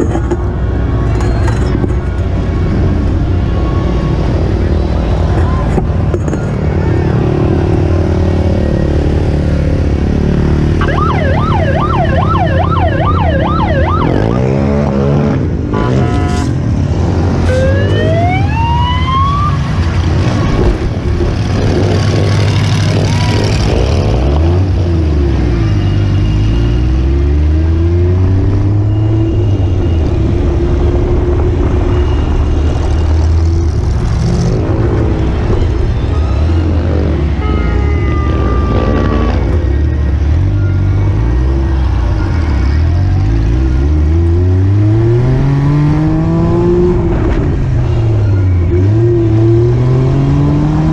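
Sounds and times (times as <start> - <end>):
siren yelp: 10.8 - 14.8, 17.4 - 19.8
siren wails: 10.8 - 15.3, 17.3 - 20.0
car engine running and revving: 38.2 - 50.9.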